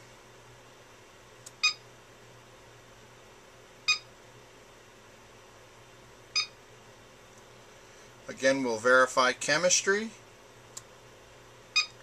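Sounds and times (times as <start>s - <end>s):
battery charger beeps: 1.6s - 1.8s, 3.9s - 4.1s, 6.4s - 6.6s, 11.7s - 12.0s.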